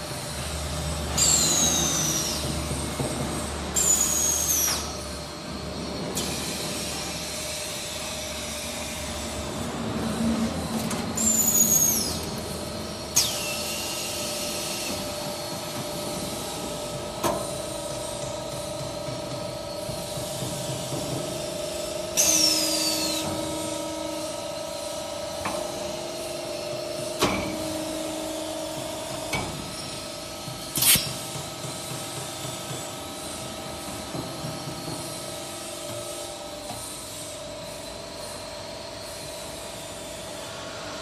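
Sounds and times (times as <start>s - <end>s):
loud hiss with falling whistle: 11.2s - 12.2s.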